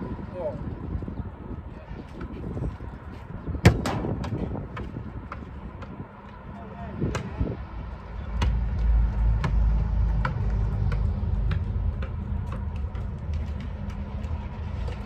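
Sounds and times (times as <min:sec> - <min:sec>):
wind on microphone: 0:00.0 - 0:11.4.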